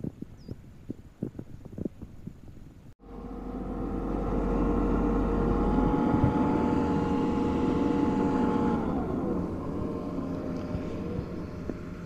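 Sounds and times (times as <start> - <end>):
loud diesel engine running: 3.0 - 12.0
steady whine: 3.0 - 12.0.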